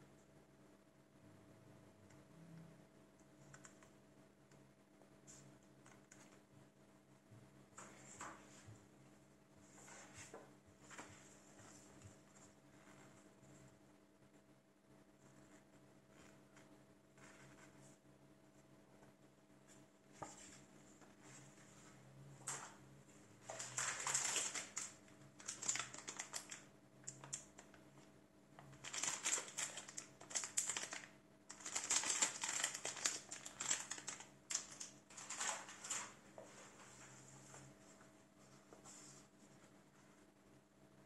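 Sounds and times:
paper and plastic packaging rustling: 23.4s - 27.7s, 28.7s - 37.1s.

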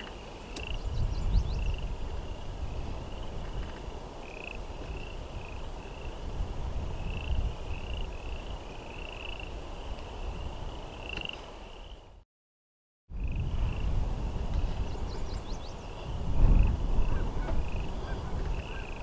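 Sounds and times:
wind rumble on microphone: 0.0s - 12.2s, 13.1s - 19.0s
frogs trilling: 4.2s - 6.2s, 7.0s - 9.6s, 10.9s - 12.0s, 15.8s - 19.0s.

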